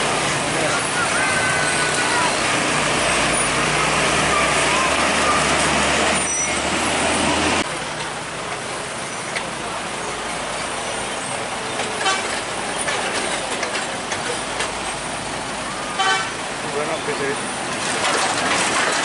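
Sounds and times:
diesel truck engine running: 0.0 - 19.0
road and tyre noise: 0.0 - 19.0
vehicle horn toot: 12.0 - 12.4, 15.9 - 16.4.

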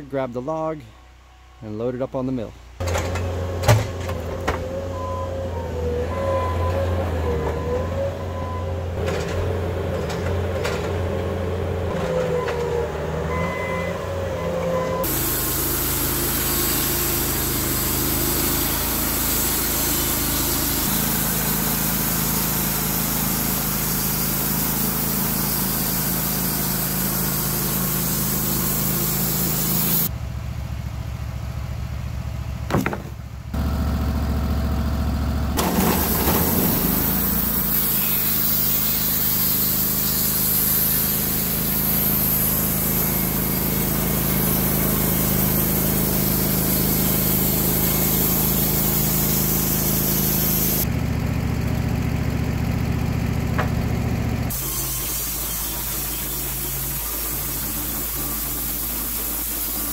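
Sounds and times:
sawmill engine running: 0.0 - 59.9
skid steer engine under load: 0.0 - 59.9.

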